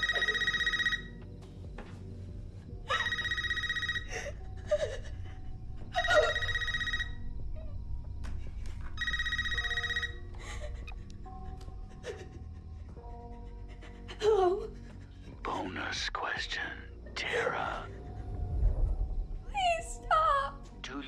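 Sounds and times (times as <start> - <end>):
phone trilling ring: 0.0 - 1.2, 2.9 - 4.4, 6.0 - 7.3, 9.0 - 10.3.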